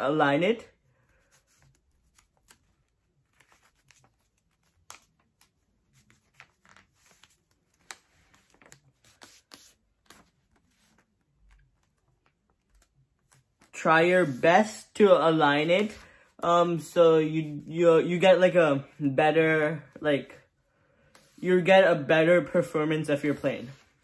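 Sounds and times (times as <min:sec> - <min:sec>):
paper being folded: 0:01.0 - 0:14.4.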